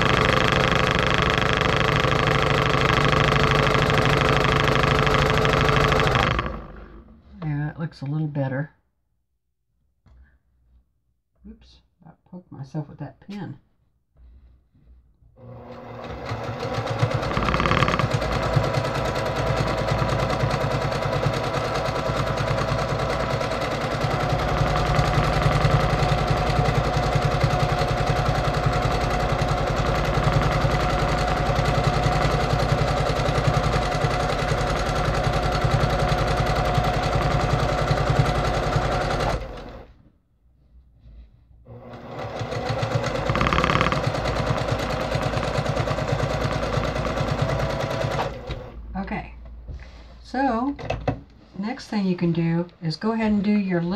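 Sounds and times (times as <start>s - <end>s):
sewing machine stitching: 0.0s - 7.3s, 15.4s - 40.0s, 41.7s - 49.0s.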